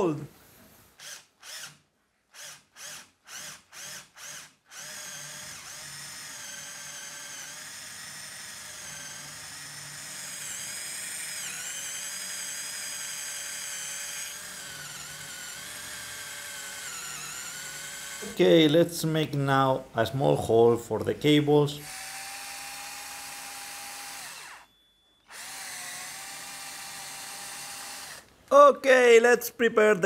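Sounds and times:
electric drill boring into wood: 1.0 - 18.4, 21.8 - 24.7, 25.3 - 28.3.

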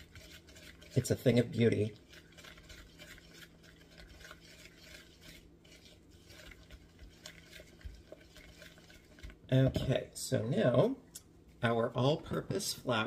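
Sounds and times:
spoon stirring and scraping in bowl: 0.0 - 10.0.

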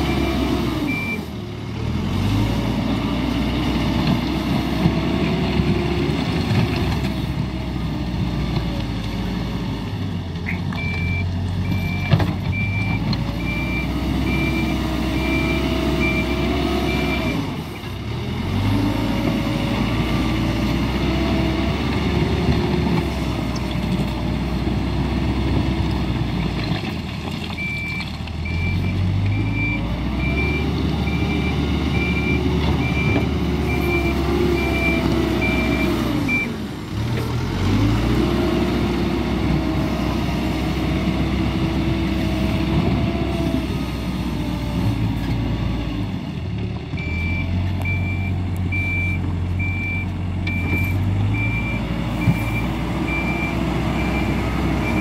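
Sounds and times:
backhoe diesel engine under load: 0.0 - 55.0
reversing alarm beeps: 0.9 - 1.3, 10.8 - 17.5, 27.6 - 36.5, 47.0 - 55.0.

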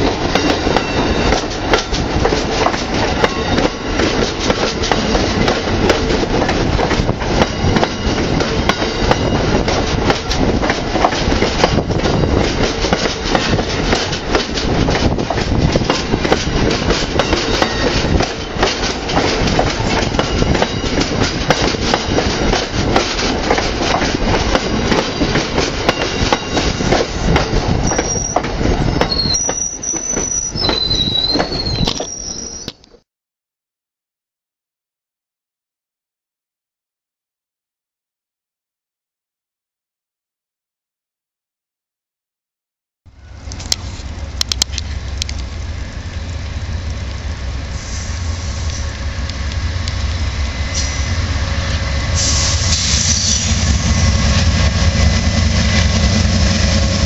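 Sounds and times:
train cars rumbling past: 0.0 - 31.9, 43.1 - 57.0
train wheels squealing: 0.5 - 1.5, 17.2 - 18.1, 27.8 - 32.8, 52.1 - 53.9.

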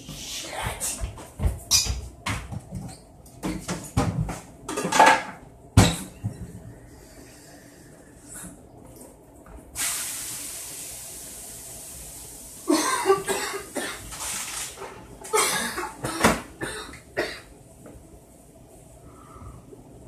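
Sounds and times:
man coughing: 12.7 - 14.0, 15.3 - 17.5.

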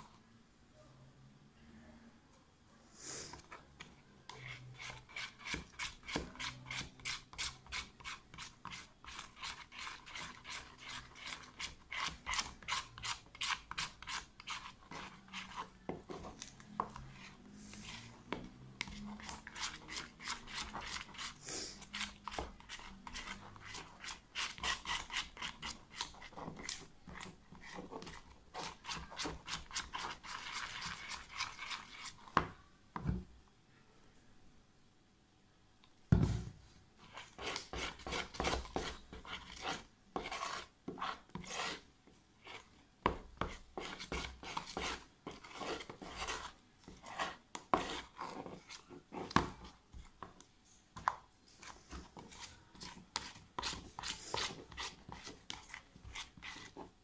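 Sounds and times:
spoon scraping plastic tub: 3.3 - 33.2, 37.0 - 57.0.

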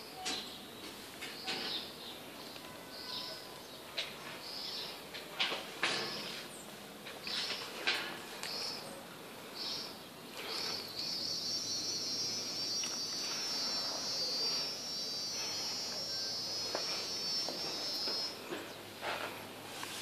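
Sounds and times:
insect high steady call: 8.4 - 18.7.

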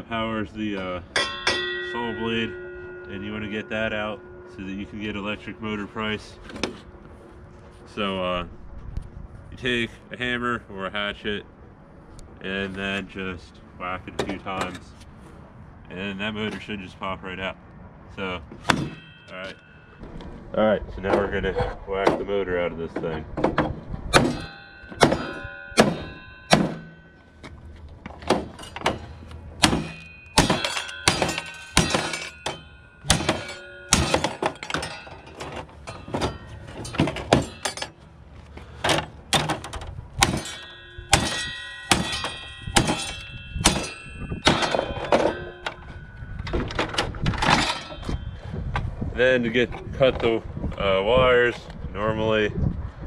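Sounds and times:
hatchet blows with metallic ring: 0.0 - 7.1, 18.6 - 20.0, 24.1 - 27.7, 28.4 - 38.1, 40.2 - 48.8.

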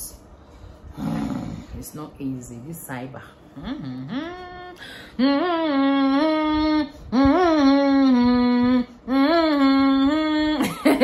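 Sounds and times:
woman humming long notes: 3.6 - 11.0.

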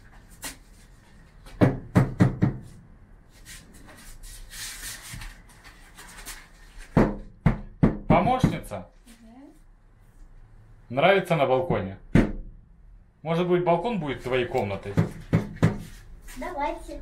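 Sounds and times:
hammer knocking nails: 1.5 - 2.7, 7.0 - 8.6, 14.9 - 15.8.

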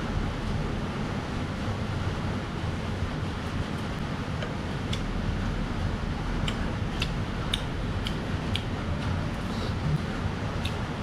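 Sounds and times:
stove burner flame rumbling: 0.0 - 11.0.

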